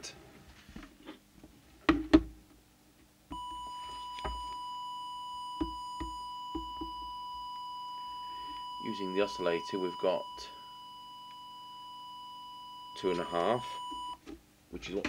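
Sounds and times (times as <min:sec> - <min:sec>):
electronic test tone: 0:03.3 - 0:14.2.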